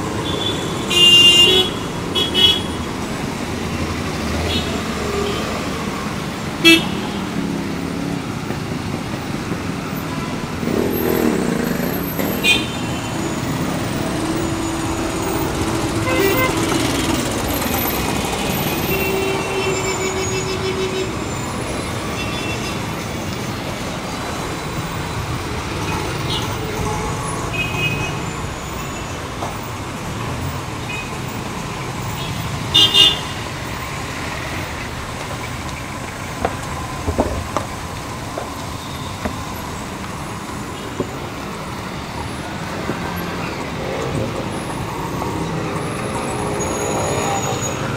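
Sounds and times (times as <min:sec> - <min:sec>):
dense road traffic: 0:00.0 - 0:47.9
vehicle horns tooting: 0:00.2 - 0:02.8, 0:06.6 - 0:07.2, 0:12.0 - 0:13.6, 0:14.5 - 0:17.2, 0:18.6 - 0:21.5, 0:32.2 - 0:33.4.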